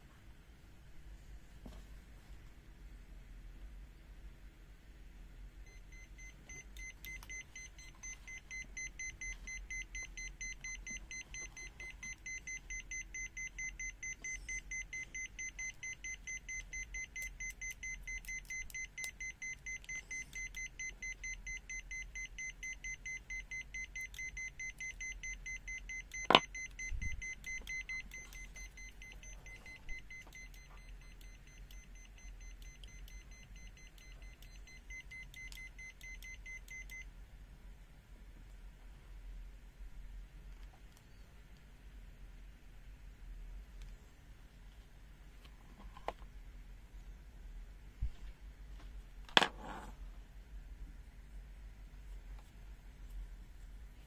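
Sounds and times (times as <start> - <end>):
rapidly pulsing high beep: 5.7 - 37.0.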